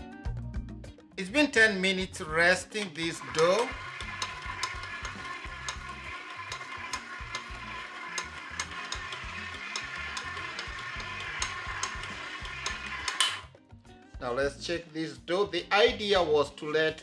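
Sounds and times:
mixer motor hum: 0:02.8 - 0:13.4
dough knocking against mixer bowl: 0:03.6 - 0:13.4.

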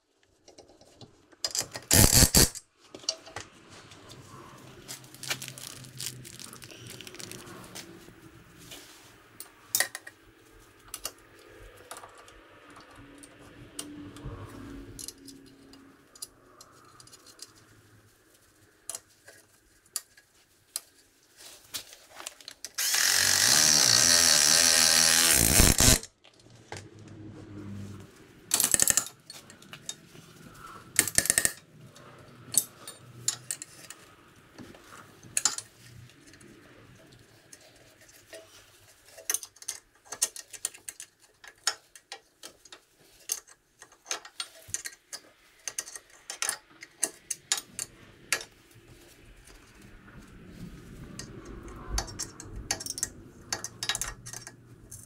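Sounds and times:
hand tools clicking on metal: 0:01.4 - 0:03.3, 0:22.6 - 0:26.1, 0:28.5 - 0:30.0, 0:30.6 - 0:34.0, 0:51.9 - 0:55.0
power tool running: 0:01.9 - 0:02.6, 0:22.8 - 0:26.0.

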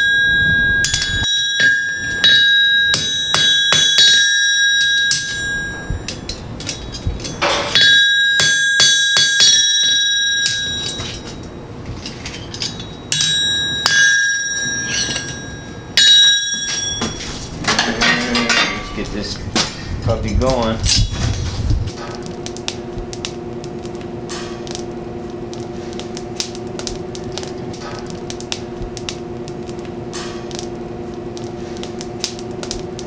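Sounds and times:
hammer striking steel on anvil: 0:00.0 - 0:19.7, 0:24.2 - 0:24.9, 0:30.1 - 0:30.7.

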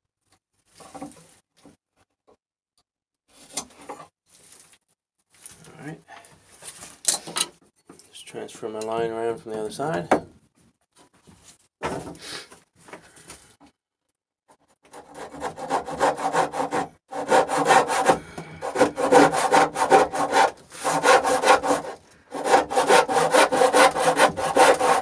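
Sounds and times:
hand saw rasping through wood: 0:14.8 - 0:25.0.

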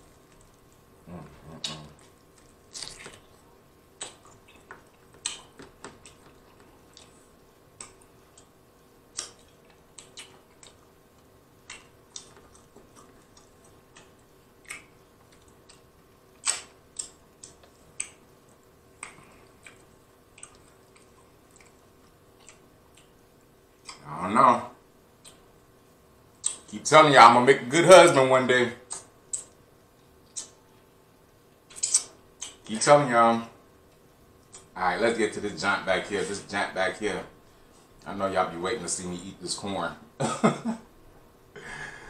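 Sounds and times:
person chewing wetly: 0:01.5 - 0:23.2.

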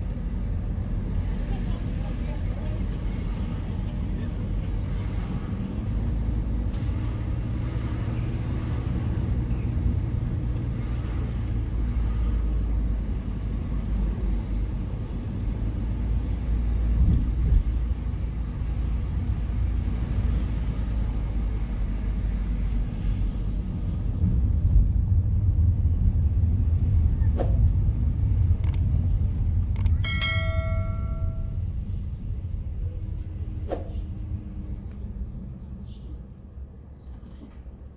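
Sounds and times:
car engine and tyres rumble: 0:00.0 - 0:37.9
sharp clicks: 0:28.6 - 0:28.9, 0:29.7 - 0:30.0
short bell chime: 0:30.0 - 0:31.6.

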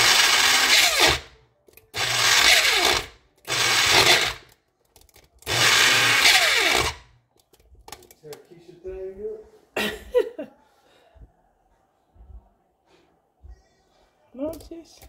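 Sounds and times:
electric grinder grinding: 0:00.0 - 0:01.3, 0:02.0 - 0:04.4, 0:05.5 - 0:07.0.

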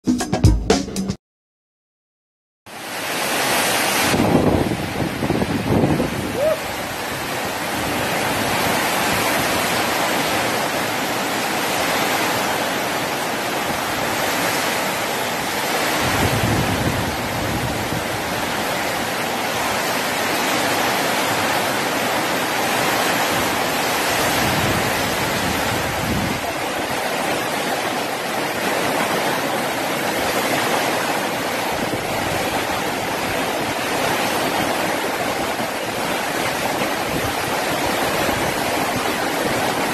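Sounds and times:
wind gusts buffeting microphone: 0:03.9 - 0:11.1, 0:13.6 - 0:27.6, 0:31.5 - 0:39.9.

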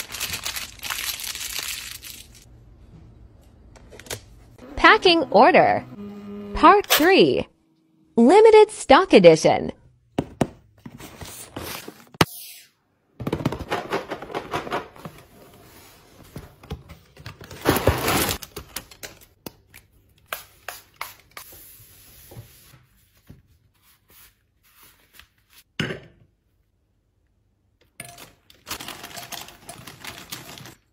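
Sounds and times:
plastic wrappers crinkling: 0:00.0 - 0:02.5, 0:28.6 - 0:30.9
scissors cutting plastic bag: 0:28.7 - 0:30.8.

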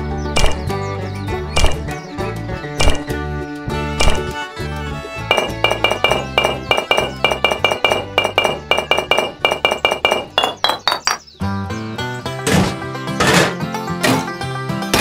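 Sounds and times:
bass line: 0:02.8 - 0:11.6.

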